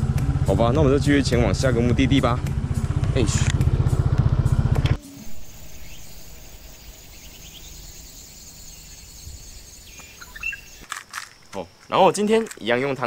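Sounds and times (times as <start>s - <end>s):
high insect whine: 2.4s - 13.0s
bird chirps: 5.0s - 10.9s.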